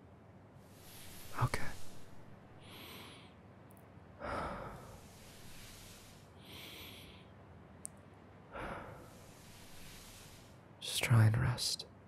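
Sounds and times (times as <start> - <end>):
high hissing rustle: 0.6 - 2.6, 4.8 - 6.9, 8.9 - 10.7
man breathing through nose: 0.6 - 3.4, 4.2 - 7.4, 8.5 - 10.6
faint click: 7.8 - 8.0.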